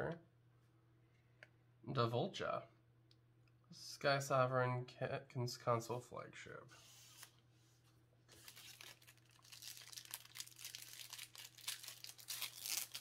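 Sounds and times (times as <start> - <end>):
cards rustling and crinkling: 8.3 - 13.0.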